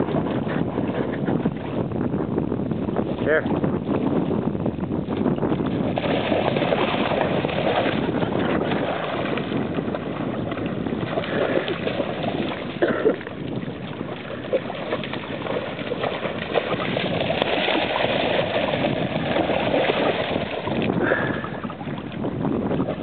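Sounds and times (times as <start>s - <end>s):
dog splashing through water: 5.6s - 23.0s.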